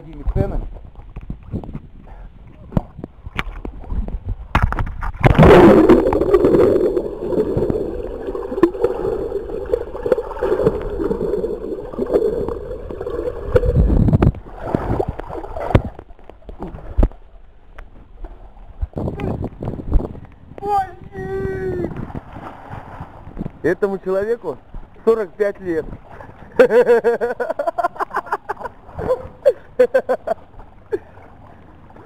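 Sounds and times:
muffled underwater gurgle: 5.1s - 17.2s
pool water splashing: 5.2s - 17.0s.

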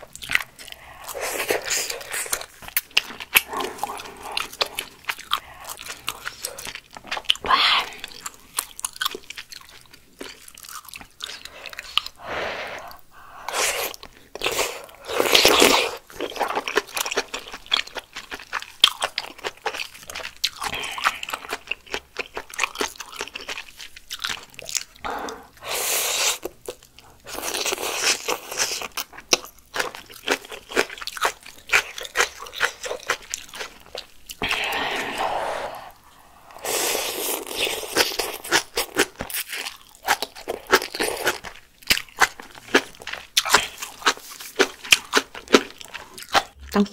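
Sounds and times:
close chewing: 0.0s - 12.2s, 12.8s - 46.8s
slurping noodles: 34.4s - 38.7s.

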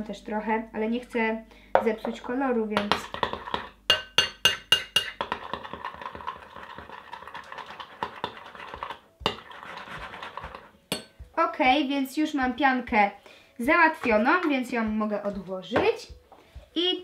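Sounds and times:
spoon stirring foam in bowl: 1.8s - 11.2s
metal spoon clinking on glass bowl: 3.9s - 5.4s, 10.9s - 11.2s.

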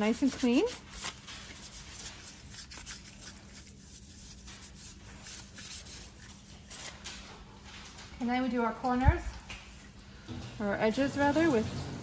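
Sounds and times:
paper rubbing on metal plate: 0.0s - 6.9s.

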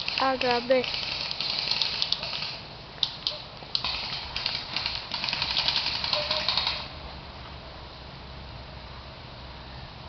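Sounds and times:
airsoft guns clicking shots: 0.0s - 6.9s.

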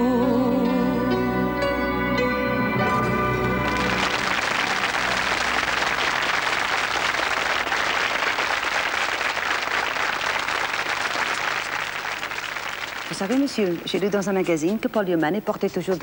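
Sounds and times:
audience applauding: 3.3s - 14.3s.

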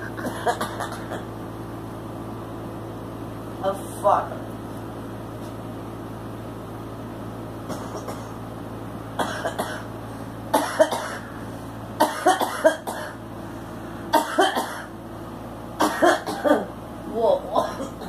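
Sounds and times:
woman coughing: 0.0s - 1.3s, 7.7s - 8.4s, 9.2s - 9.9s, 10.5s - 11.3s, 12.0s - 13.2s, 14.1s - 14.9s, 15.8s - 16.8s, 17.5s - 18.0s.

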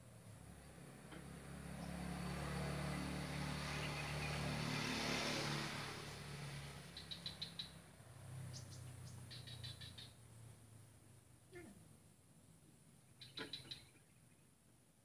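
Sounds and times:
motor vehicle passing by: 0.0s - 11.0s.

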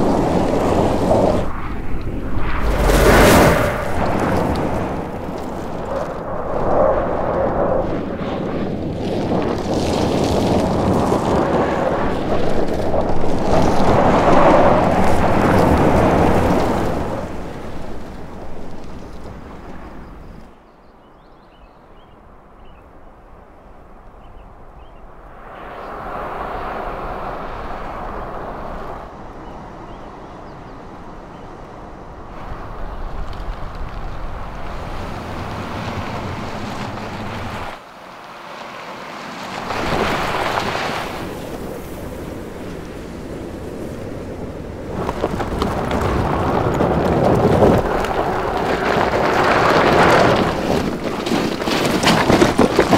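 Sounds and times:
tyres sliding on dirt: 0.0s - 20.6s, 31.4s - 52.9s.

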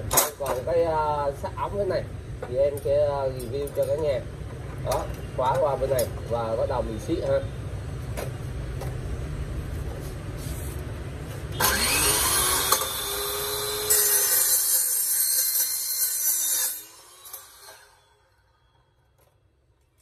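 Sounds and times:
saw motor whine: 11.5s - 18.9s
saw blade cutting steel pipe: 11.6s - 18.7s.

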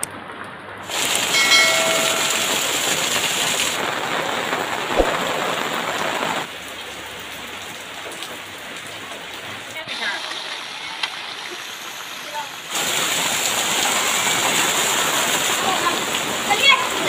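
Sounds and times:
heavy rain splashing on pavement: 0.0s - 17.0s
short ringing tone: 1.3s - 3.2s.

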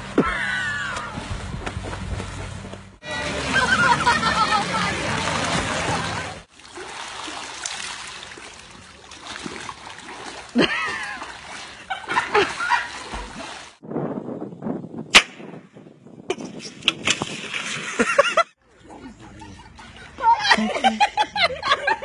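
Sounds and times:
pool water splashing: 0.0s - 13.8s, 17.1s - 22.0s
people shouting: 0.1s - 1.2s.

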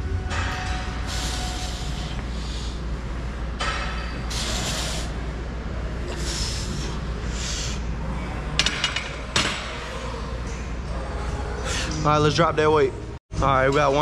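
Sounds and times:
low hum of gym: 0.0s - 14.0s
sharp hissing breaths: 1.0s - 3.0s, 4.2s - 5.2s, 6.1s - 7.9s.

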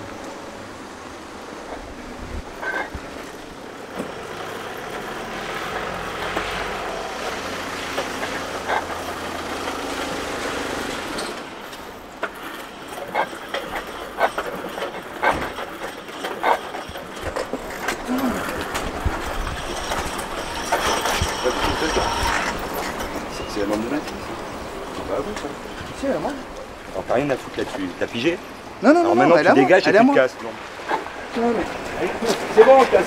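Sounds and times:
sharp clicks and knocks: 11.1s - 24.3s.

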